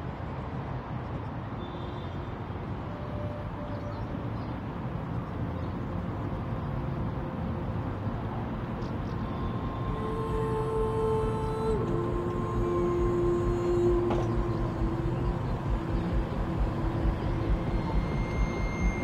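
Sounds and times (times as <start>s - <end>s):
city traffic rumble: 0.0s - 19.0s
faint brief tones: 12.6s - 19.0s.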